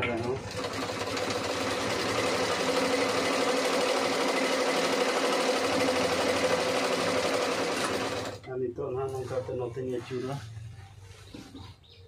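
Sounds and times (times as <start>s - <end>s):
sewing machine running: 0.0s - 8.5s.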